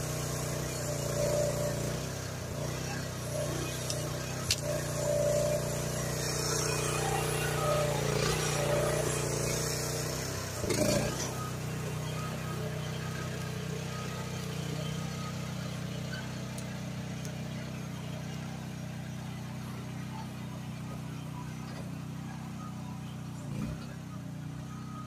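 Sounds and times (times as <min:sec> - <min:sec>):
mini excavator engine running: 0:00.0 - 0:25.0.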